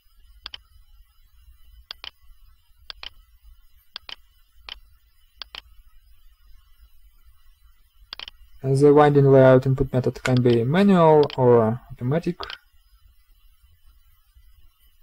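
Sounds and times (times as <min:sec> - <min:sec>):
faint low hum: 0:00.0 - 0:15.0
mouse and keyboard clicks: 0:00.4 - 0:00.6, 0:01.9 - 0:02.2, 0:02.9 - 0:03.2, 0:04.0 - 0:04.8, 0:05.4 - 0:05.7, 0:08.1 - 0:08.4, 0:10.2 - 0:10.6, 0:11.2 - 0:11.4.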